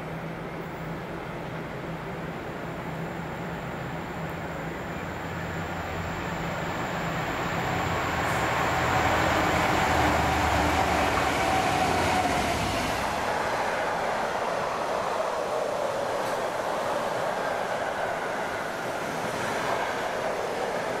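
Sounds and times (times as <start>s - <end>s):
diesel locomotive passing: 0.0s - 21.0s.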